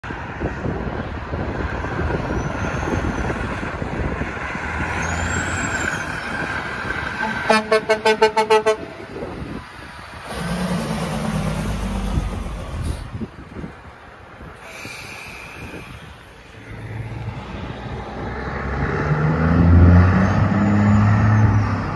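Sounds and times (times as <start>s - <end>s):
truck engines and traffic: 0.0s - 21.9s
truck air horn blasts: 7.2s - 9.0s
truck pulling away: 9.7s - 13.5s, 14.6s - 21.9s.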